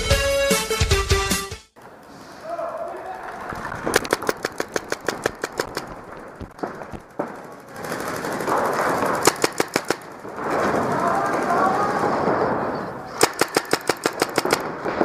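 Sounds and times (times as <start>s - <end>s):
paintball markers firing: 3.7s - 11.7s, 13.1s - 15.0s.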